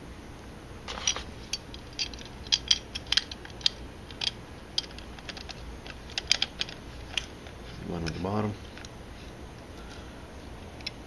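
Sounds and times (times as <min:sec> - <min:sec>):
allen key clicking on metal bolts: 0:00.9 - 0:07.3.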